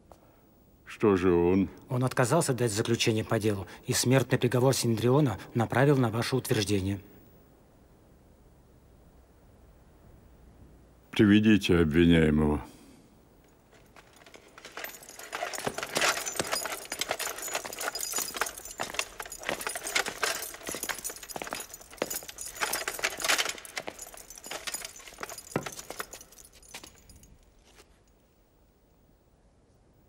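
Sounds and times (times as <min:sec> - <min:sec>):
metal armour jingling: 0:13.4 - 0:28.2
footsteps on stone paving: 0:13.7 - 0:27.9.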